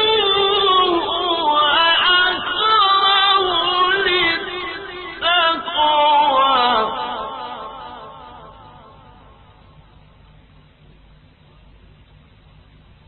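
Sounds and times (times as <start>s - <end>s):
man chanting melodically: 0.0s - 9.6s.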